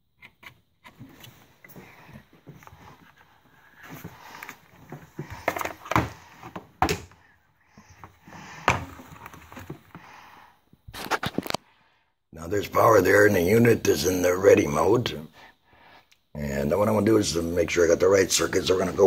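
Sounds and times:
handling knocks and clicks: 3.8 - 7.2.

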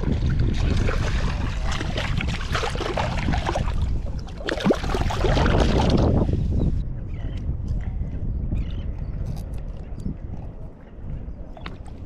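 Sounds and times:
shallow water splashing: 0.0 - 6.2
wind rumbling on microphone: 0.0 - 12.0.

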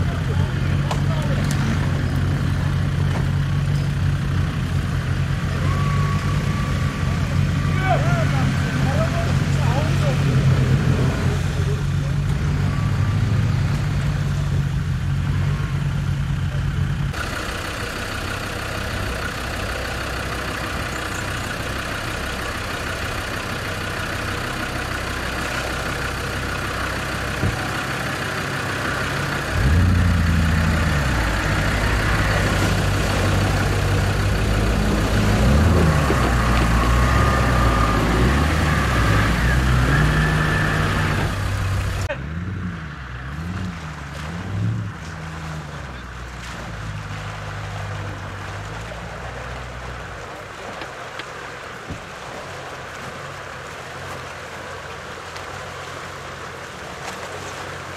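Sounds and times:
creek water rushing: 0.0 - 57.9
diesel engine idling and revving: 0.0 - 57.9.

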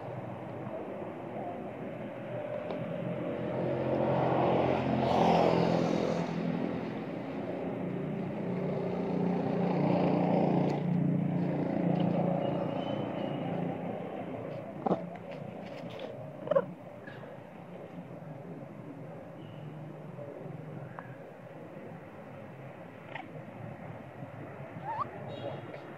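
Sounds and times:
vehicle engine humming: 6.0 - 25.9.

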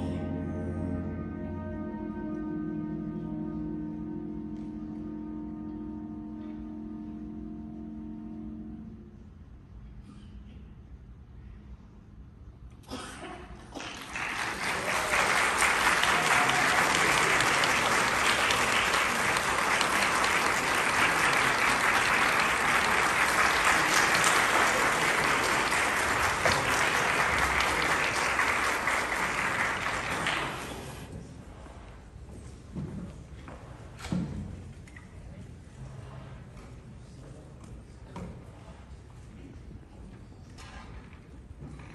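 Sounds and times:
audience applauding: 13.8 - 31.1.

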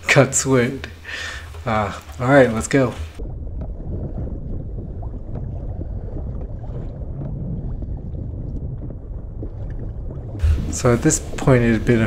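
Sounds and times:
wind rumbling on microphone: 2.8 - 12.0.

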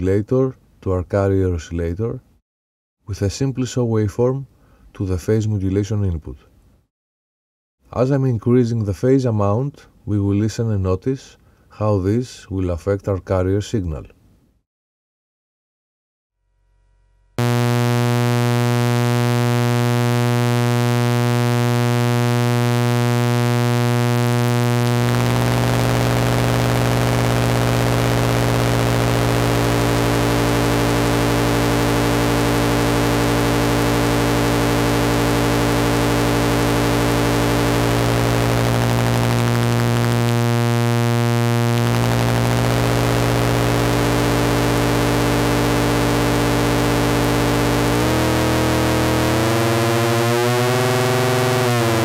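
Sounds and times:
buzzy synthesizer drone: 17.4 - 52.0.

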